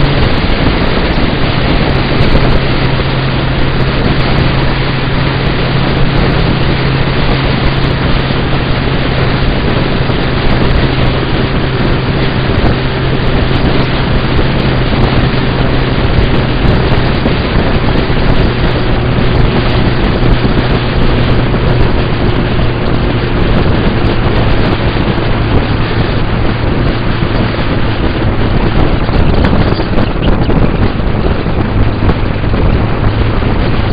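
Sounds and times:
motorcycle engine drone: 0.0 - 33.9
wind rush on microphone: 0.0 - 33.9.

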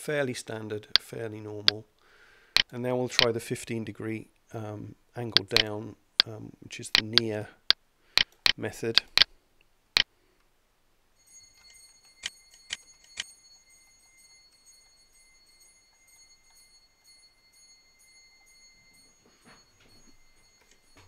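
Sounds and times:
sharp clicks: 5.4 - 5.7, 6.9 - 7.3, 8.2 - 9.3.

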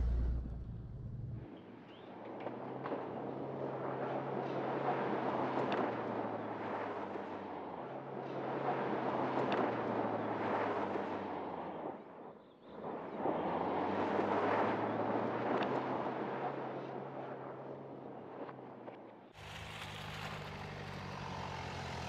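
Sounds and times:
diesel engine running: 0.0 - 1.4
tyres rumbling on loose dirt: 0.0 - 1.4.

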